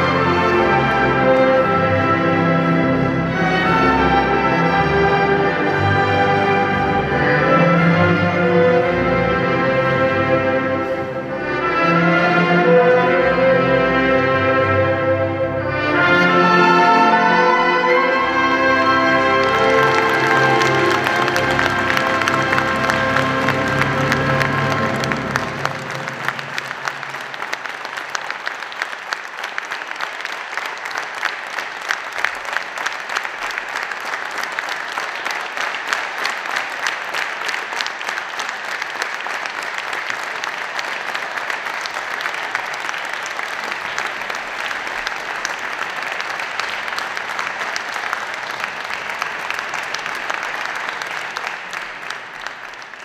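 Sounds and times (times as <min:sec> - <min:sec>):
audience applauding: 0:18.2 - 0:53.0.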